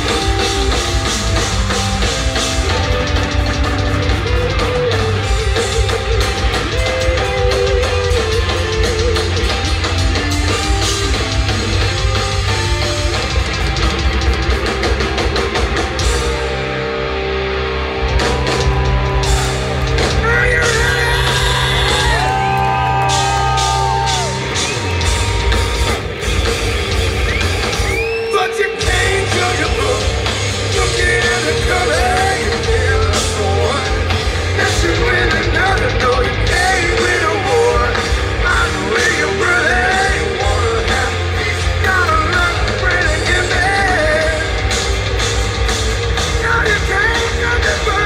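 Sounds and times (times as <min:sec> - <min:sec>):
bass guitar: 0:00.0 - 0:48.0
drums: 0:00.0 - 0:48.0
electric guitar: 0:00.0 - 0:48.0
person singing and yelling: 0:18.5 - 0:25.6, 0:28.1 - 0:44.6, 0:46.3 - 0:48.0.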